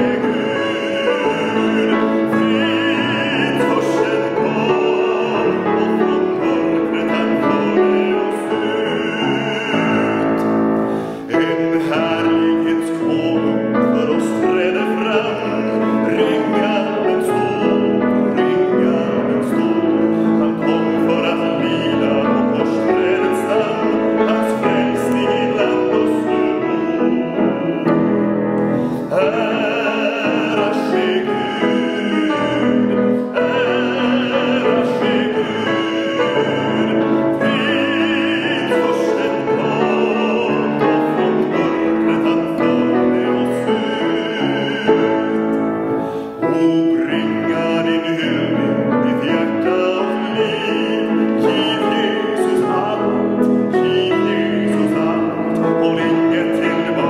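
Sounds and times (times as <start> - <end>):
grand piano: 0.0 - 57.0
man singing a hymn: 0.0 - 57.0.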